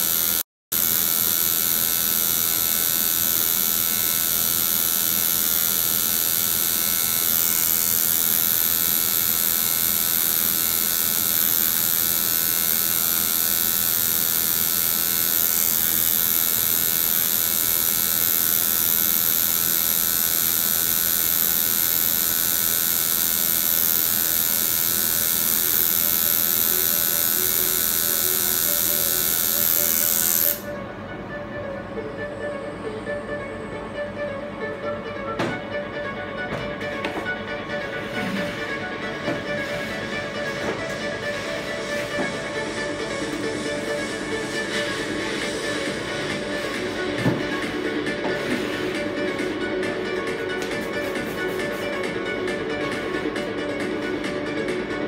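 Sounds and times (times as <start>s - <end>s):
tattoo machine buzzing: 0.0s - 30.7s.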